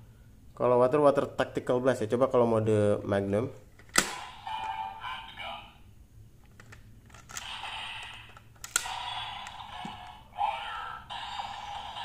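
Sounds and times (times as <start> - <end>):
toy electronic sound effects: 7.4 - 12.0.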